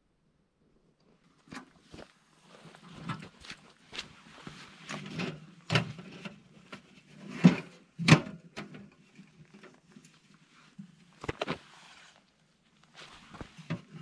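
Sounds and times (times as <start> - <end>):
knocks and scrapes of gear: 11.0 - 14.0.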